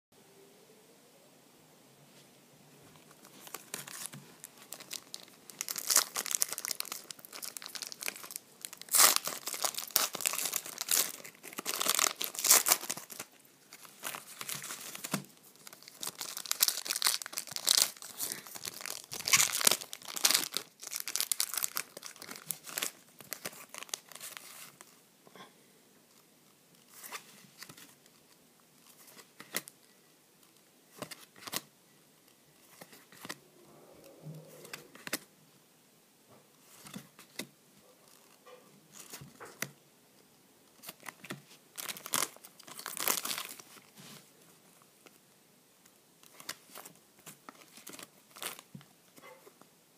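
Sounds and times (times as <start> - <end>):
wrappers torn open and crinkled: 3.5 - 24.4, 41.8 - 43.6.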